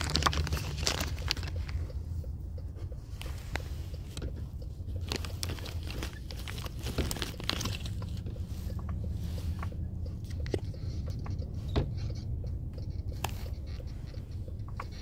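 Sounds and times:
packaging clicks and scrapes: 0:00.0 - 0:01.8, 0:05.0 - 0:08.3
steady low rumble: 0:00.0 - 0:15.0.

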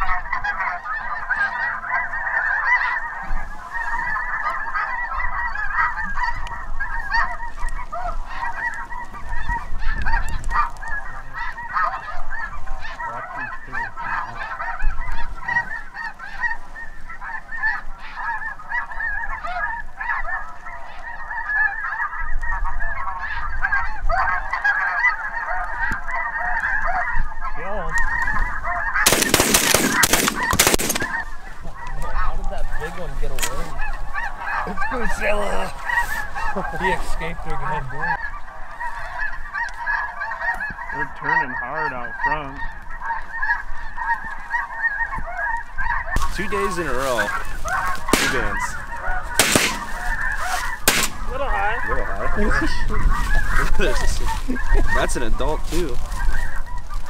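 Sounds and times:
geese honking: 0:00.0 - 0:57.0
shotgun shots: 0:29.0 - 0:31.2, 0:48.1 - 0:48.7, 0:49.4 - 0:50.2, 0:50.8 - 0:51.3.

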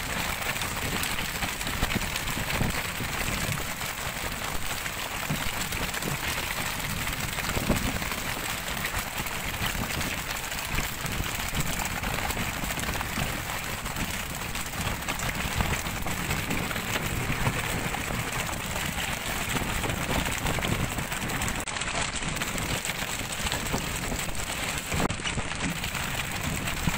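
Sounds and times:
low boat rumble: 0:00.0 - 0:26.9
water splashing along boat hull: 0:00.0 - 0:26.9.

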